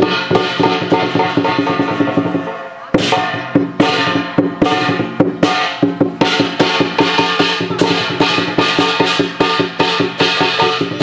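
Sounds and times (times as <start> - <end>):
cymbals clashing: 0.0 - 11.0
drum beats: 0.0 - 11.0.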